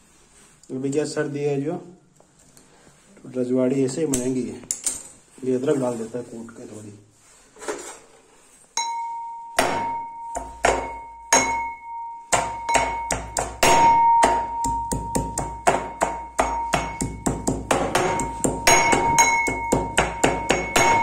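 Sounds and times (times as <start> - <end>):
pestle pounding in metal mortar: 9.6 - 21.0.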